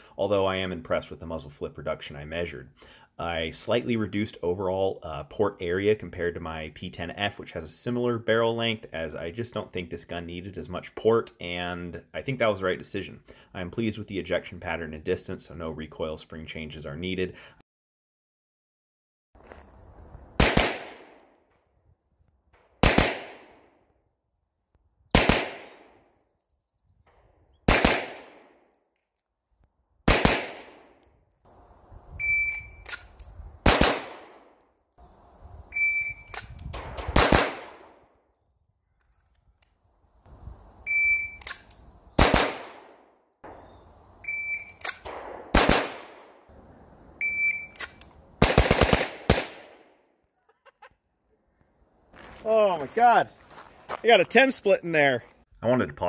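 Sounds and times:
pistol shots: 20.4 - 21.2, 22.8 - 23.7, 25.1 - 26.0, 27.7 - 28.6, 30.1 - 30.9, 33.6 - 34.5, 36.7 - 37.9, 42.2 - 43.7, 44.8 - 46.4, 47.8 - 49.8
shot timer beep: 32.2 - 32.8, 35.8 - 36.3, 40.9 - 41.4, 44.2 - 44.8, 47.2 - 47.8.

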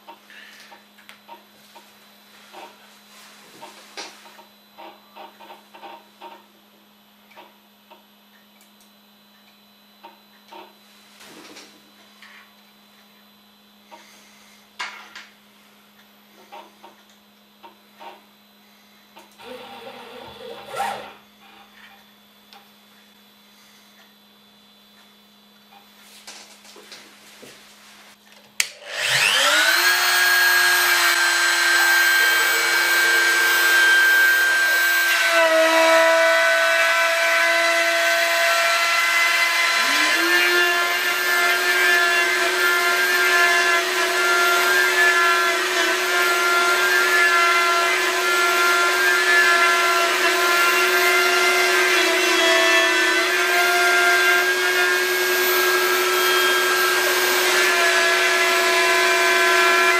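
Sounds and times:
router spindle motor whining: 17.4 - 22.4, 28.6 - 59.9.

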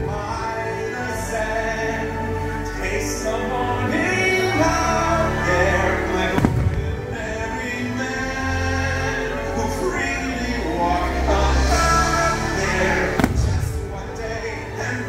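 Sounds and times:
orchestral music with singing: 0.0 - 15.0.

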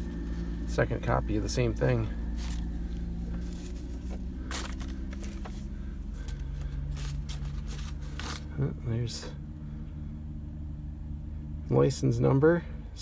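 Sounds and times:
steady low hum: 0.0 - 13.0
paper rustling: 3.4 - 8.5.

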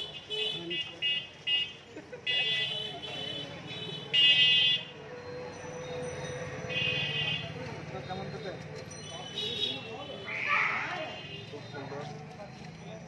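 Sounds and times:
vehicle horn honking: 6.7 - 7.5.

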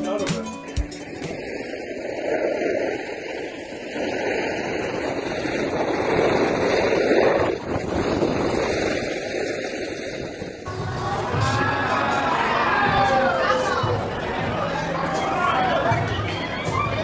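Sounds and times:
wind on microphone: 1.0 - 14.4.

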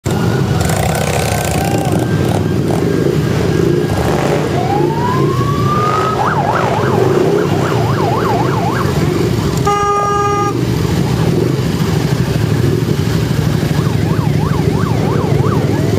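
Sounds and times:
motorcycle engines rumbling: 0.0 - 15.9
siren wailing and yelping: 1.5 - 3.1, 4.2 - 9.6, 13.6 - 15.9.

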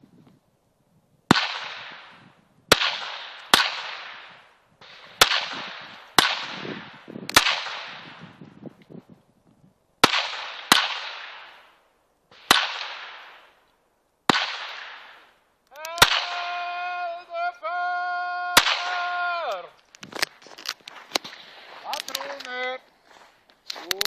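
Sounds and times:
pistol shots with echo: 1.3 - 8.2, 10.0 - 11.7, 12.4 - 13.5, 14.3 - 15.2, 16.0 - 16.4, 18.6 - 19.1.

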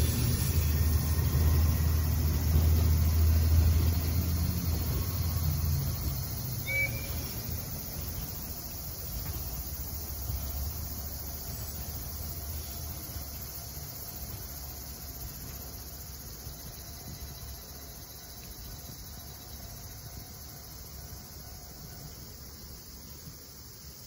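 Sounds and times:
diesel railcar engine rumble: 0.0 - 24.0
insect chorus: 0.0 - 24.0.

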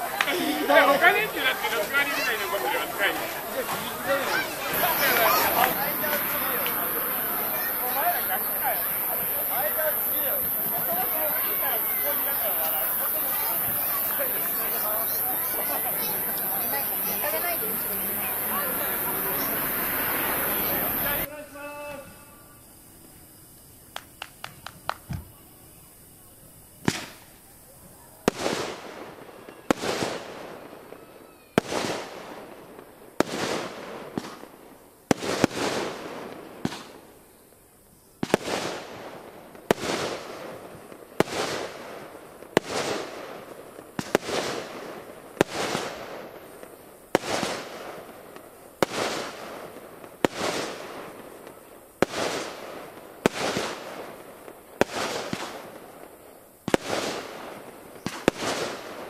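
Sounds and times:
small sharp firework cracks: 0.0 - 59.0
firework shells bursting: 1.0 - 21.3, 23.6 - 25.6.

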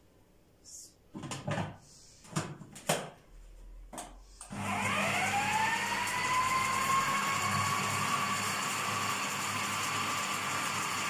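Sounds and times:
food processor motor whine: 4.5 - 11.0.

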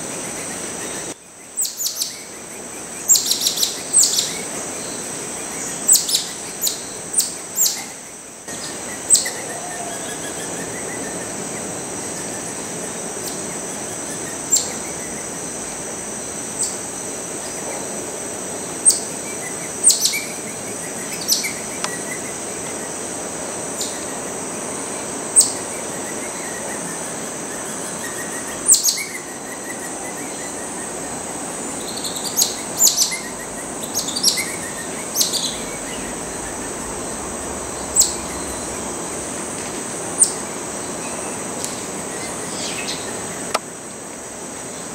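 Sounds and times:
high insect drone: 0.0 - 44.9.

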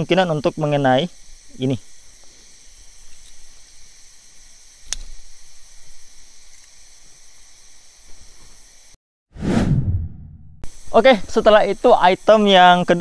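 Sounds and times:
background hiss: 0.0 - 9.0, 10.6 - 13.0.

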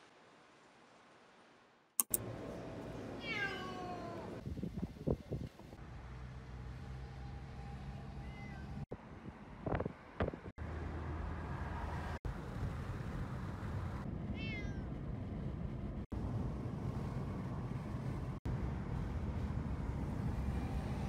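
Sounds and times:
cat meow: 3.2 - 4.3, 8.2 - 8.7, 14.3 - 14.9
car road rumble: 4.2 - 21.0.

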